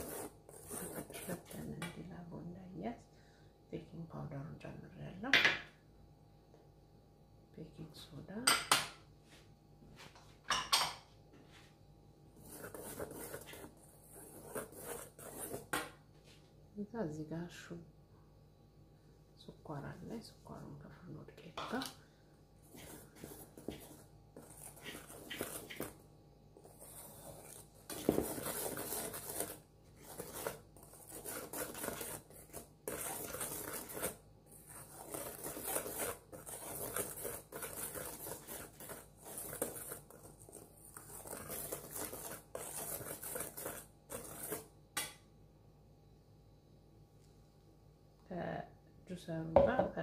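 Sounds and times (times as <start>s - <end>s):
whisk scraping metal bowl: 0.0s - 1.7s, 12.4s - 15.8s, 22.6s - 26.0s, 26.6s - 44.7s.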